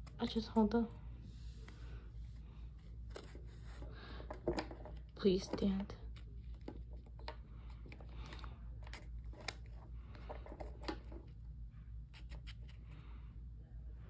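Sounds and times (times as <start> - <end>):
steady low hum: 0.0 - 14.0
cards clicking and rustling: 3.0 - 11.4.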